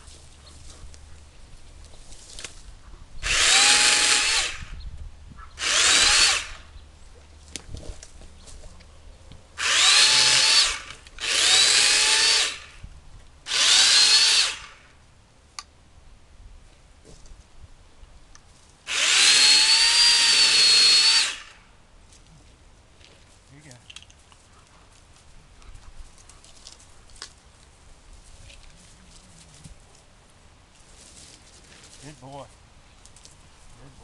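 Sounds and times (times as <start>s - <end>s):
electric chainsaw cutting limbs: 3.2s - 4.8s, 5.6s - 6.7s, 9.6s - 12.8s, 13.5s - 15.0s, 18.9s - 21.7s.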